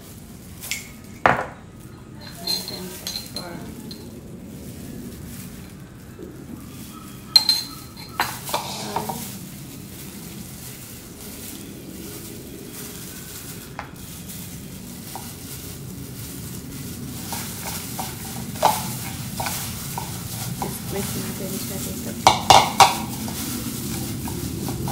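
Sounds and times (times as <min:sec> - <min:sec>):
low background noise: 0:00.0 - 0:24.9
glass and ceramic clinking: 0:02.2 - 0:04.1, 0:07.3 - 0:09.2.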